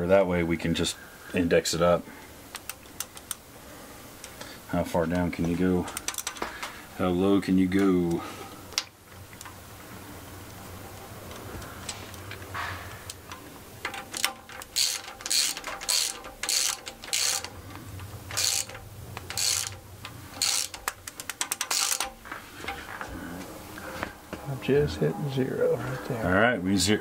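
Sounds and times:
ratchet wrench clicking: 0:02.5 - 0:03.4, 0:13.1 - 0:22.2.

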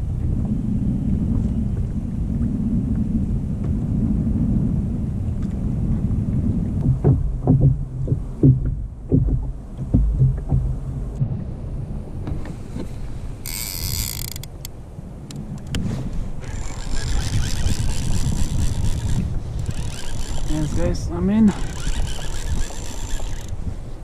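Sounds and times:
water on plastic kayak: 0:00.0 - 0:24.0
wind rumbling on microphone: 0:00.0 - 0:24.0
knocks and bumps in kayak: 0:05.4 - 0:11.5, 0:12.2 - 0:13.1.

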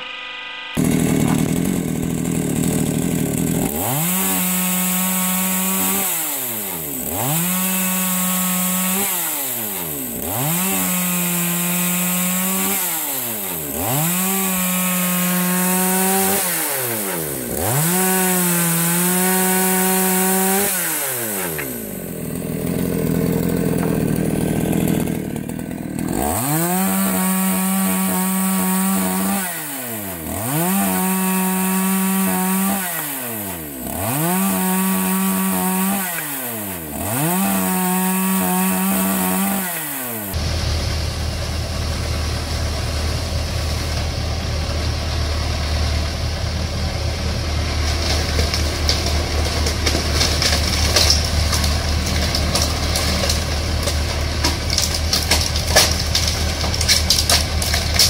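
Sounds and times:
chainsaw cutting branches: 0:00.1 - 0:58.0.

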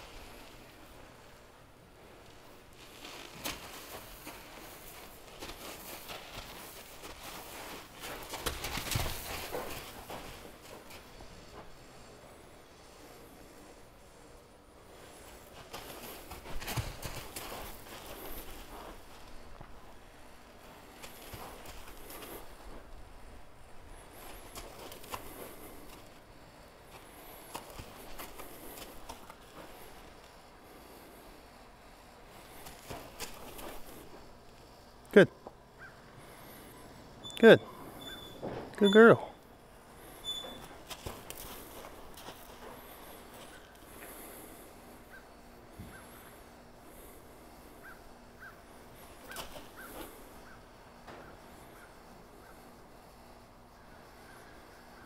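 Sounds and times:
horse and person footsteps: 0:00.0 - 0:14.0, 0:14.8 - 0:36.8, 0:39.8 - 0:52.3
faint high chirps: 0:36.8 - 0:39.4.

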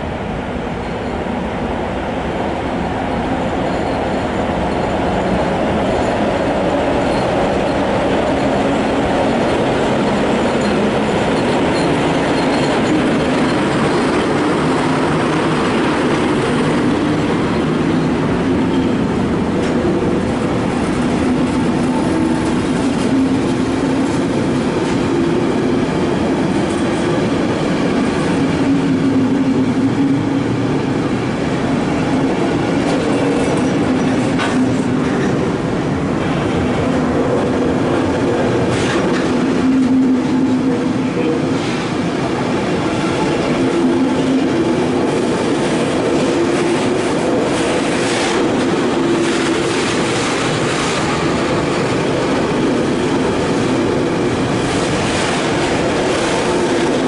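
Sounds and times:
electric locomotive passing: 0:00.0 - 0:57.0
freight wagons rolling on rails: 0:06.9 - 0:25.3.

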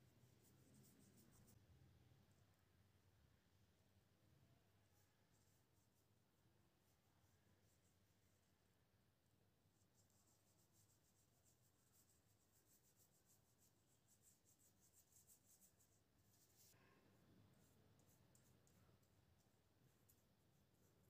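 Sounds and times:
paintbrush scratching on paper: 0:00.0 - 0:01.6, 0:04.9 - 0:08.7, 0:09.6 - 0:16.8, 0:17.5 - 0:21.0.

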